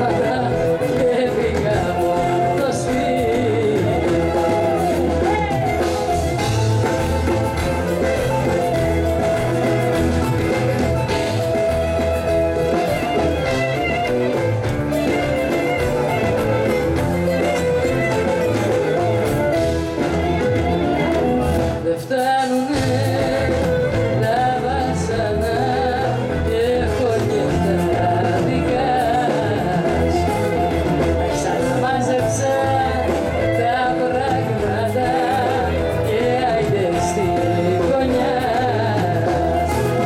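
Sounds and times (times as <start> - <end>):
woman singing into microphone: 0.0 - 8.1, 20.6 - 40.0
live pop band playing: 0.0 - 40.0.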